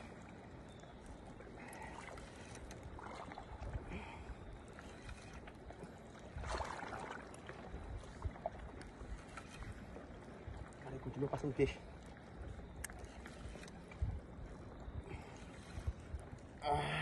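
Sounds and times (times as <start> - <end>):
rushing water: 0.0 - 17.0
wind noise: 12.4 - 17.0.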